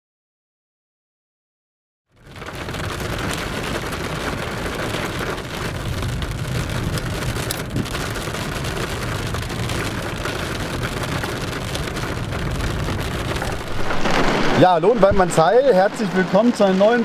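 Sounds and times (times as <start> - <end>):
heavy rain on car roof: 2.1 - 17.0
low rumble: 9.0 - 16.3.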